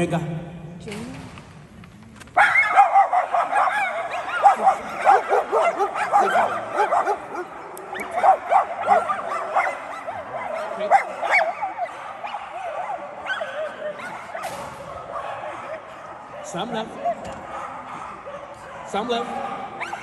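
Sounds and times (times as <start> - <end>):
dog yipping and whining: 2.4 - 15.3.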